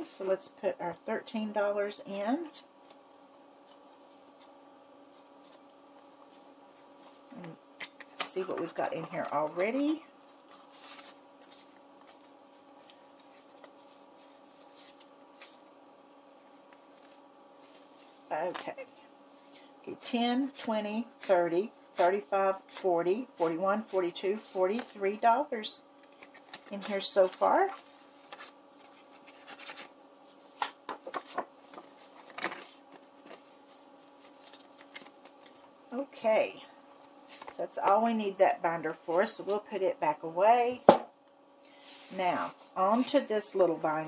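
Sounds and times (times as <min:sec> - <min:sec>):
low steady hum: 0:00.0 - 0:44.0
paper bills rustling: 0:02.8 - 0:18.7, 0:26.0 - 0:35.7.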